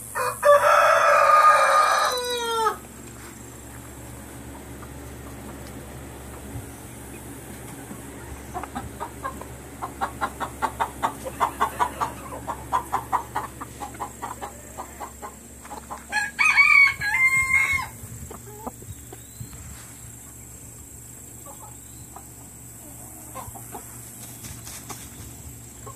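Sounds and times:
rooster crowing: 0:00.0 - 0:02.8, 0:16.1 - 0:18.0
hen clucking: 0:00.4 - 0:25.9.

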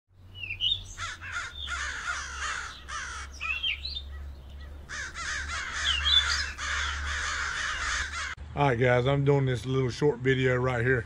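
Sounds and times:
high whistled bird notes: 0:00.3 - 0:01.9, 0:02.7 - 0:04.5
crows cawing: 0:00.6 - 0:08.4.

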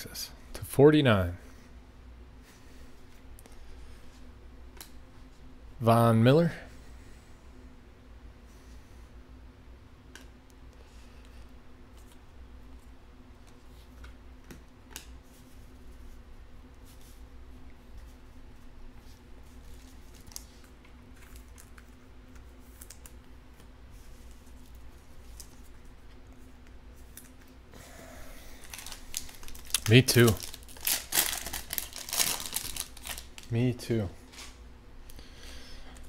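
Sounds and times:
steady low hum: 0:00.0 - 0:36.0
trading cards being handled: 0:18.9 - 0:27.5, 0:28.6 - 0:33.6.

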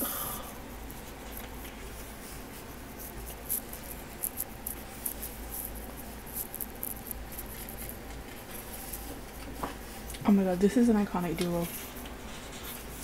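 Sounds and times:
book pages rustling and turning: 0:11.4 - 0:13.0.

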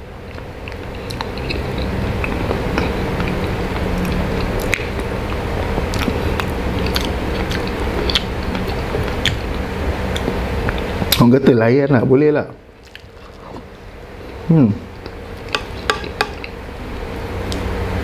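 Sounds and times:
low hum: 0:00.0 - 0:11.5
person chewing: 0:00.2 - 0:11.2, 0:12.8 - 0:16.6
wet mouth clicks and smacks: 0:02.5 - 0:05.1.

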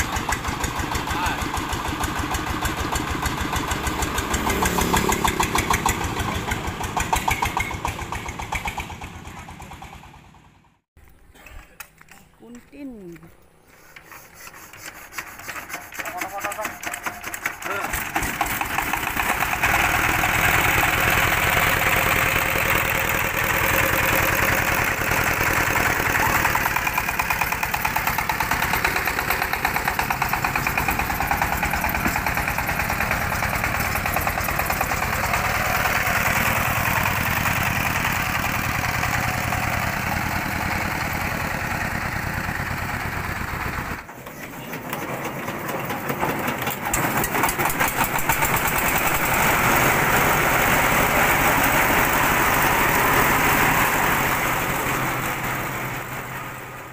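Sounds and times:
diesel engine chugging: 0:00.0 - 0:10.8, 0:15.4 - 0:56.9.

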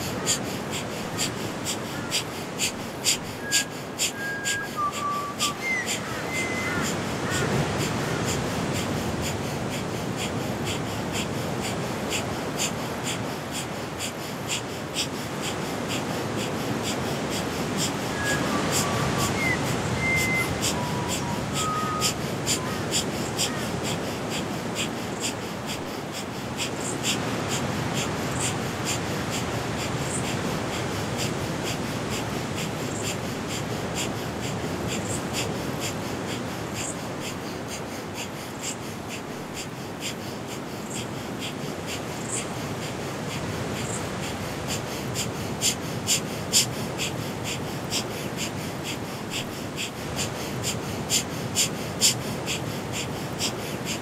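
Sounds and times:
bird whistling: 0:03.4 - 0:07.4, 0:18.1 - 0:22.2.

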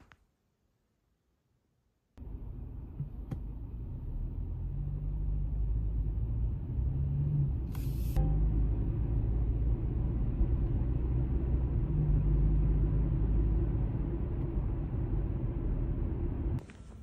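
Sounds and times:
faint low engine hum: 0:02.2 - 0:17.0
road and engine rumble: 0:02.2 - 0:17.0
brief hiss: 0:07.7 - 0:08.2.

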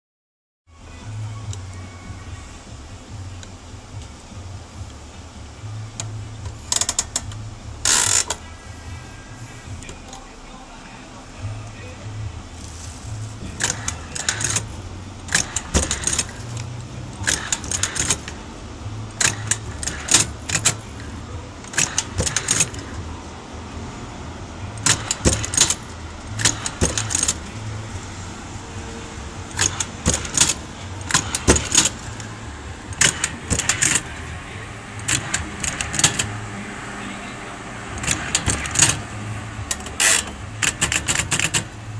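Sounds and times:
embossing machine metallic clacks: 0:13.5 - 0:14.7, 0:15.3 - 0:18.4, 0:19.1 - 0:21.0, 0:21.6 - 0:23.0, 0:24.8 - 0:27.5, 0:29.5 - 0:32.3, 0:32.9 - 0:34.3, 0:35.0 - 0:36.4, 0:37.9 - 0:41.8.

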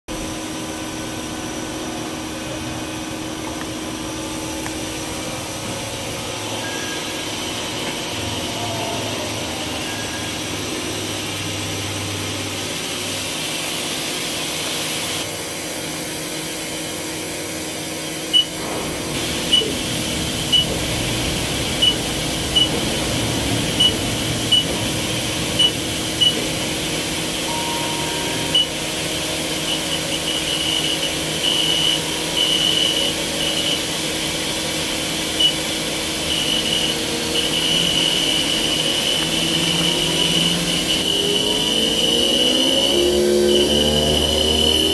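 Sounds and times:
machine fans and pumps humming: 0:00.1 - 0:44.9
short high beeps: 0:06.6 - 0:07.4, 0:08.5 - 0:10.5, 0:27.5 - 0:33.0.

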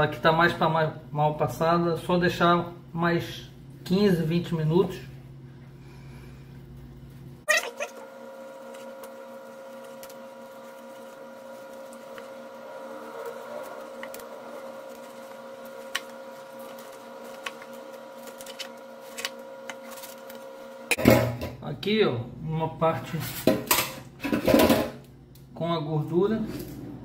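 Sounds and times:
machine humming: 0:04.8 - 0:21.6.

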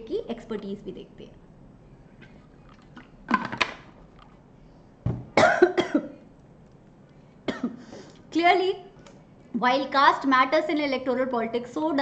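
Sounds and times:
woman coughing: 0:05.4 - 0:06.2, 0:07.5 - 0:07.8.

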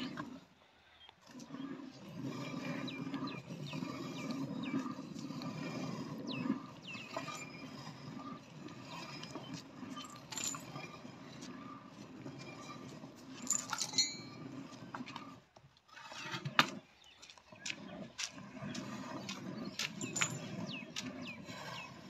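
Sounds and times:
metallic clinks from pail: 0:13.4 - 0:14.3, 0:20.0 - 0:20.5.

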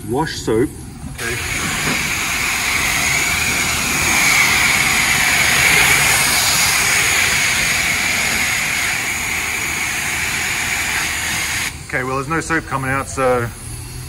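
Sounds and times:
water jet hissing on car body: 0:01.2 - 0:14.0.

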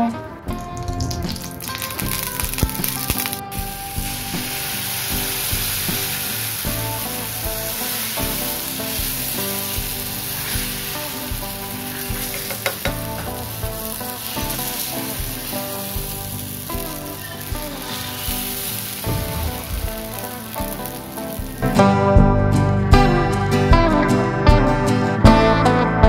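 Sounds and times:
batter sizzling on hot iron: 0:01.0 - 0:21.9.

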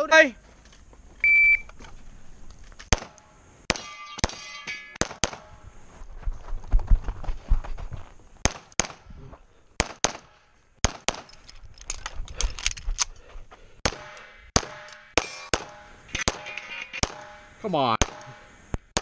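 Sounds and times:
pistol shots: 0:02.9 - 0:05.5, 0:08.4 - 0:09.0, 0:09.8 - 0:11.3, 0:13.8 - 0:17.4, 0:18.0 - 0:19.0
steel targets ringing: 0:03.7 - 0:05.6, 0:14.0 - 0:18.6.

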